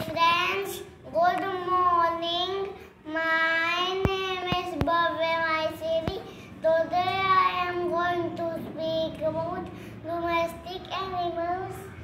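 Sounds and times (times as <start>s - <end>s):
boy chanting sing-song: 0.0s - 12.0s.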